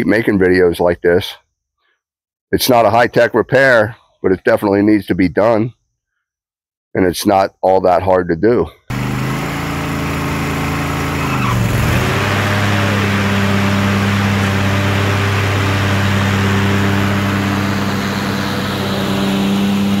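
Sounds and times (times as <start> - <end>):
riding mower engine running: 8.9 - 20.0.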